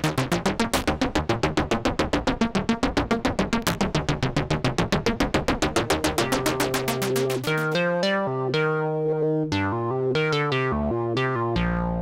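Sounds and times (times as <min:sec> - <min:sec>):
synthesizer melody: 0:05.6 - 0:12.0.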